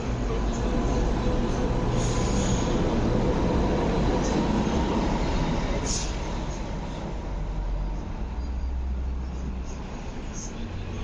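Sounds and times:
tram rail rumble: 0:00.0 - 0:11.0.

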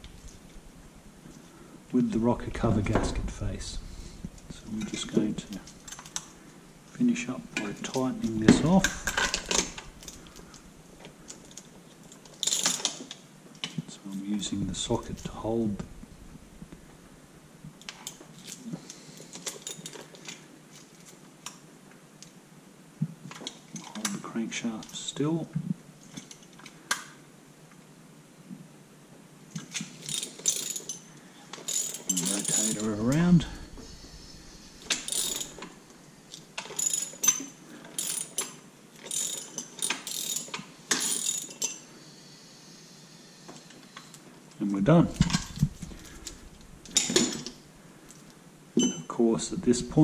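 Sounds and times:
wrench clicking on metal: 0:34.9 - 0:35.7, 0:38.0 - 0:41.8.

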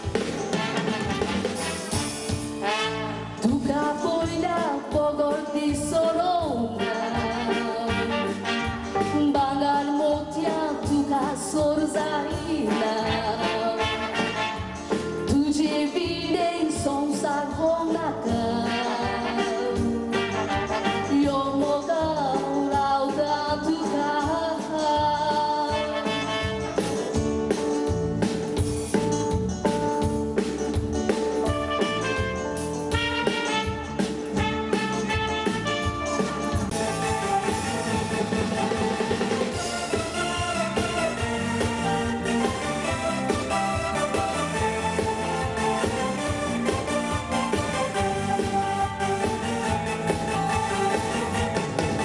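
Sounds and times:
backing music with brass and beat: 0:00.0 - 0:09.8, 0:10.5 - 0:15.4, 0:17.9 - 0:22.3, 0:24.1 - 0:52.0
woman singing into a microphone: 0:03.4 - 0:14.3, 0:15.2 - 0:26.4.

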